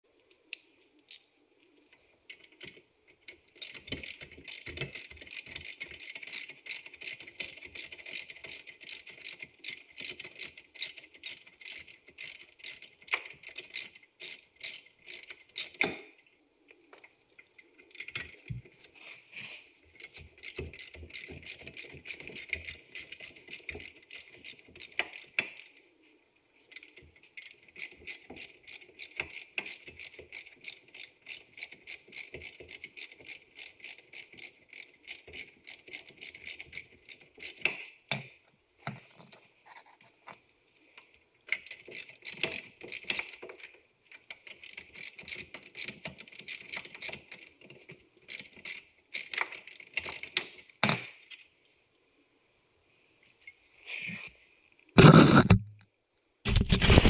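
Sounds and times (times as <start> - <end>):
metallic clicking of hand tools: 2.3 - 16.2.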